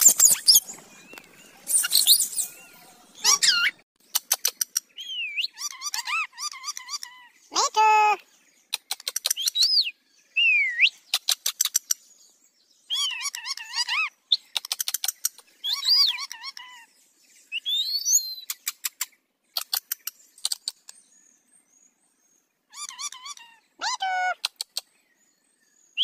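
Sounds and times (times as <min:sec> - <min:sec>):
parakeets chattering: 0:00.0 - 0:08.2, 0:13.0 - 0:16.8, 0:22.7 - 0:24.9.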